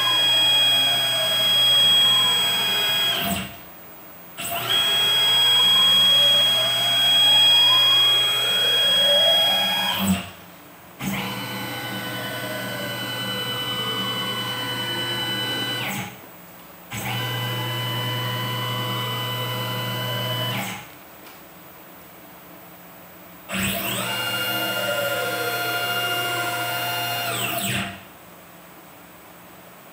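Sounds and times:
stepper motors whining: 0.0 - 3.5, 4.4 - 10.3, 11.0 - 16.1, 23.5 - 28.0.

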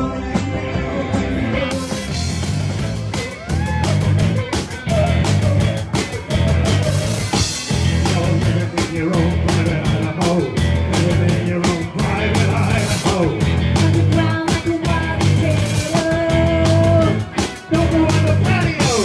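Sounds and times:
bass guitar: 0.0 - 19.0
drum kit fast beat: 0.0 - 19.0
electric guitars: 0.0 - 19.0
woman singing: 11.0 - 19.0.

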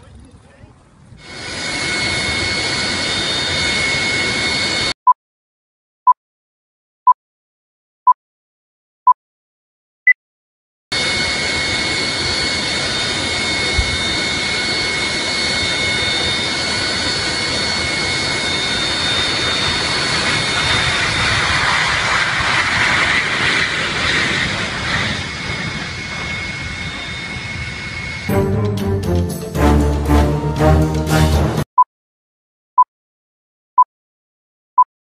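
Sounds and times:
jet engines rushing and whining: 0.3 - 5.0, 10.9 - 31.6.

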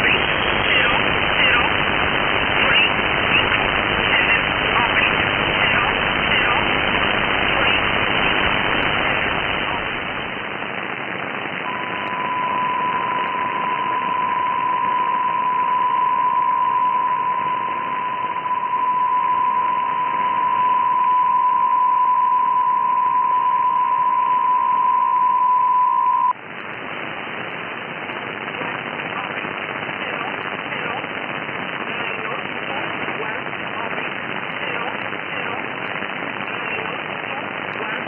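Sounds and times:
steady single radio tone: 0.0 - 10.9, 11.5 - 26.4
radio band hiss: 0.0 - 38.0.

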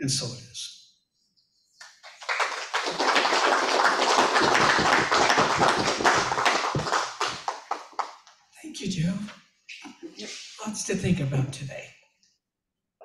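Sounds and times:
crowd applauding: 1.8 - 8.2.

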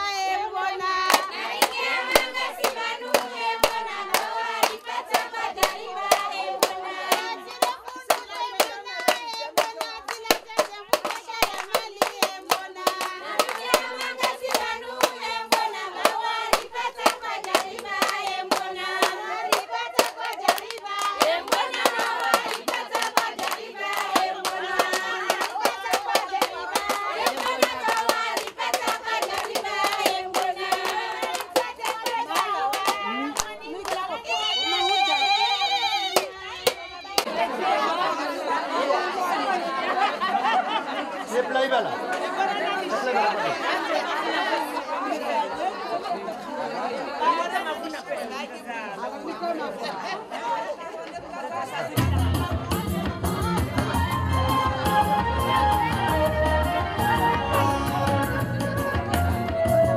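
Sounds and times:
rhythmic hand clapping: 0.0 - 34.3, 36.0 - 37.4
women singing together: 0.0 - 41.4, 42.0 - 59.9.

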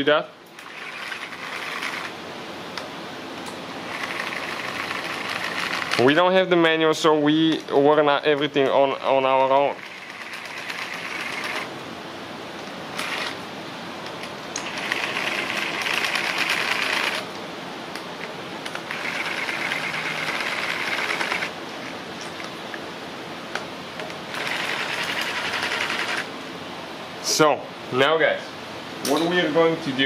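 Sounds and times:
power driver whirring: 0.6 - 2.1, 3.9 - 6.0, 9.8 - 11.7, 13.0 - 13.4, 14.6 - 17.3, 18.6 - 21.6, 24.3 - 26.3.

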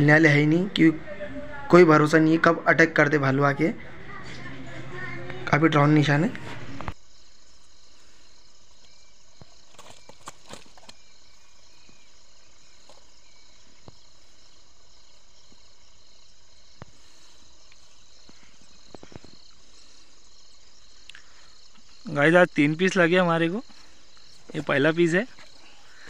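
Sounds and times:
crickets and insects chirping: 0.0 - 26.0.

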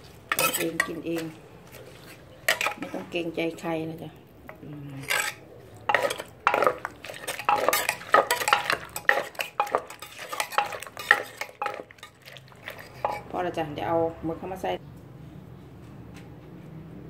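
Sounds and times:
metal spoon scraping clay: 0.3 - 3.0, 4.9 - 13.5
wooden pestle pounding in mortar: 5.9 - 11.8.

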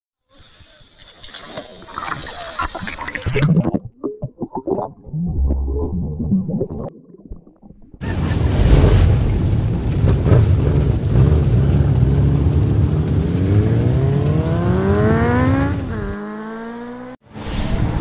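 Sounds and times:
loud rushing noise: 8.0 - 16.2
vehicle engine revving: 8.4 - 17.2.

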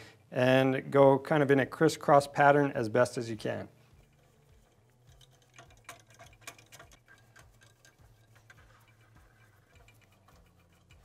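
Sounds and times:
hand ratchet clicking: 3.9 - 11.0.

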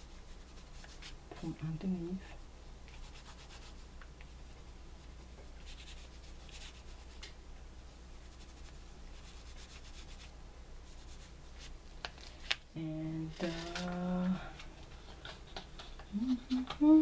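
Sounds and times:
oil pastel rubbing on paper: 0.0 - 1.2, 2.9 - 3.9, 5.6 - 7.2, 8.1 - 11.8
steady low hum: 0.0 - 17.0.

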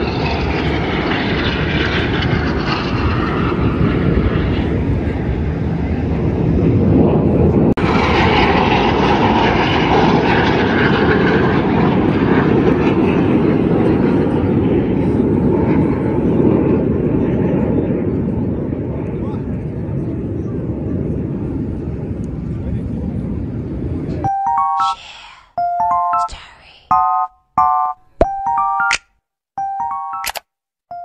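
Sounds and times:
jet engines rushing: 0.0 - 19.0.

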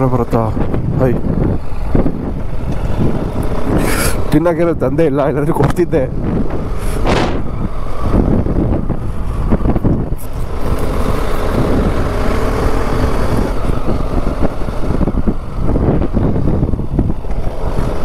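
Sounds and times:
wind on microphone: 0.0 - 18.0
motorcycle engine running: 6.2 - 18.0.

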